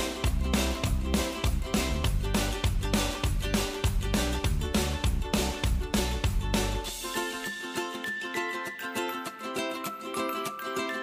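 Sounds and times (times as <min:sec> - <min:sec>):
drum and bass beat: 0:00.0 - 0:07.4
plucked-string tune: 0:00.0 - 0:11.0.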